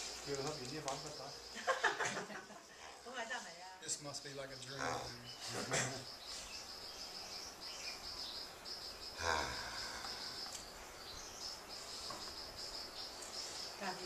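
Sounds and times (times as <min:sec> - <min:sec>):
insects chirping in a trill: 0:00.0 - 0:14.0.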